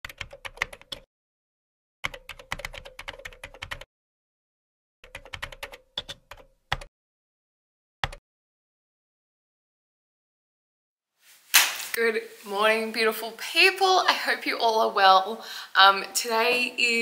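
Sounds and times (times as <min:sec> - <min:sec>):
keyboard typing: 0:00.0 - 0:01.1, 0:02.0 - 0:03.9, 0:05.0 - 0:06.9.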